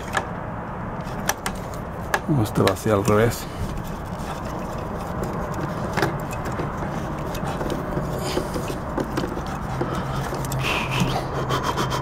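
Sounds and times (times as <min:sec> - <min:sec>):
scraping of wired connectors: 0:01.0 - 0:11.2.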